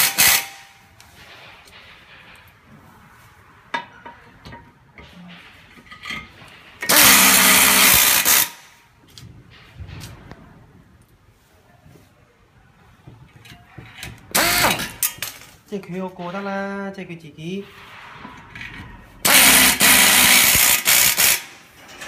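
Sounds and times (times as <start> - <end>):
pneumatic screwdriver hissing: 0.0 - 0.7, 6.9 - 8.6, 14.3 - 15.0, 19.2 - 21.5.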